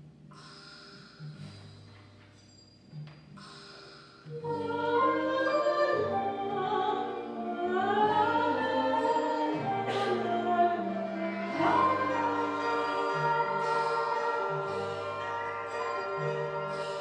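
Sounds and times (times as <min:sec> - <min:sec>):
chamber ensemble music: 0:04.3 - 0:17.0
operatic choir-like singing: 0:04.6 - 0:17.0.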